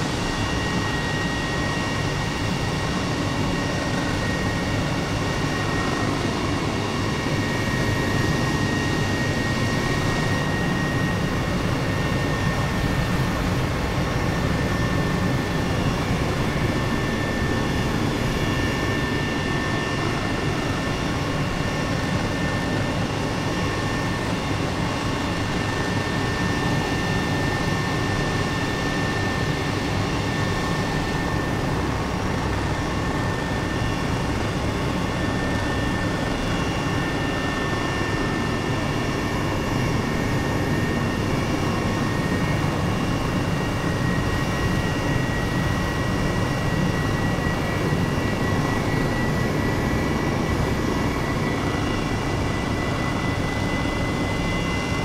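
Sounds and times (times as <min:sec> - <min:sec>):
helicopter engine and rotor: 0:00.0 - 0:55.0.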